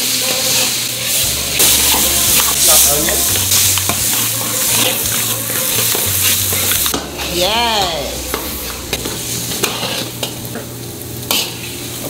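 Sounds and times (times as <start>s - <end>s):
meat and onion sizzling in a wok: 0.0s - 12.0s
metal spoon scraping a pan: 0.2s - 7.4s, 8.6s - 10.4s, 11.3s - 11.6s.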